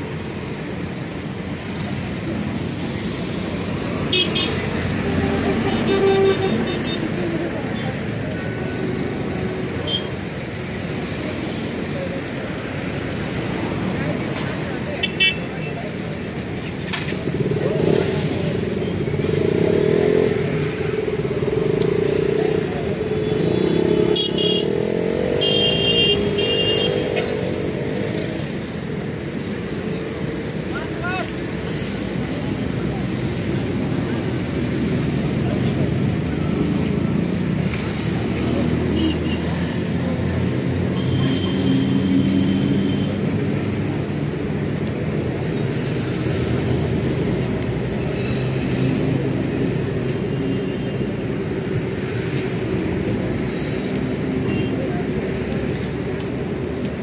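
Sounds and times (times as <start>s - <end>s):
motorcycle engines at low revs: 15.8s - 25.6s
motorcycle engines running: 15.8s - 57.0s.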